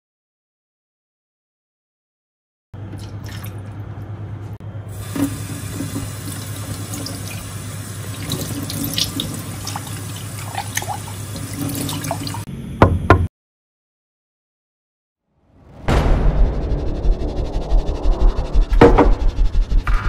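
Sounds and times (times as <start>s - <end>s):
water running in a stream: 4.9s - 12.5s
low hum: 15.5s - 20.0s.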